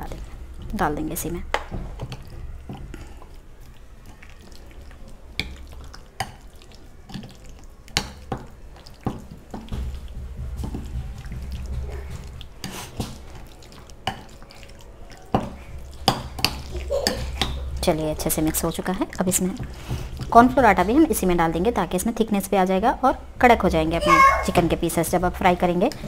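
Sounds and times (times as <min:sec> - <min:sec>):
hand mixing wet marinade: 0:00.0 - 0:26.0.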